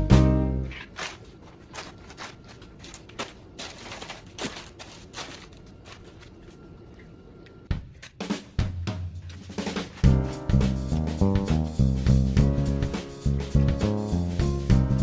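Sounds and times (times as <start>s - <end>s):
background music: 0.0s - 0.8s, 7.7s - 15.0s
faint footsteps: 0.7s - 7.1s.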